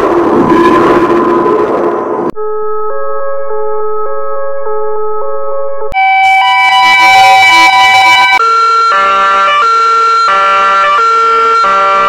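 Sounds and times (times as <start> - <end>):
cartoon ambulance siren: 2.4 - 12.0
layered ambulance sirens: 2.4 - 12.0.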